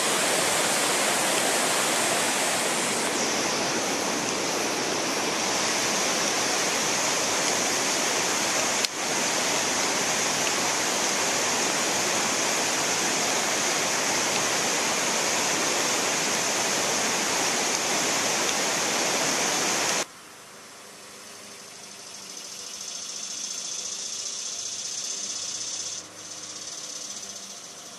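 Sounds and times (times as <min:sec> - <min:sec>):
water rushing over spillway: 0:00.0 - 0:20.1.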